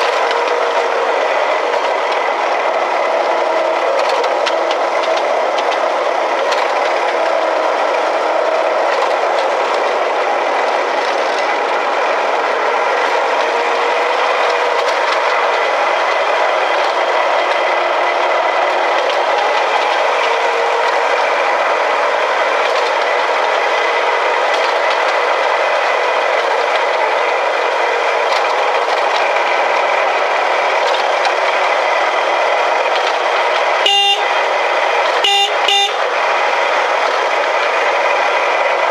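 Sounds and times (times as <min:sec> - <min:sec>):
small train wheels rattling: 0:00.0 - 0:38.9
horn toot: 0:33.8 - 0:34.4, 0:35.2 - 0:36.0
drive whine: 0:33.8 - 0:36.1.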